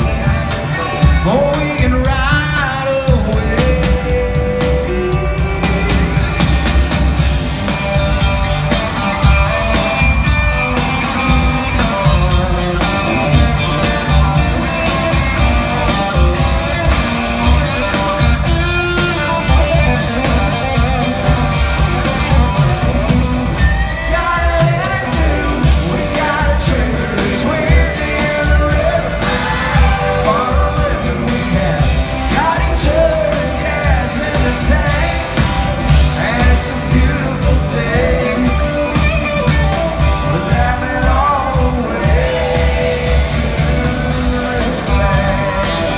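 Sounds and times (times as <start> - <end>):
lead vocal singing: 0.0 - 6.4, 23.8 - 45.9
electric guitar: 0.0 - 45.9
live country-rock band: 0.0 - 45.9.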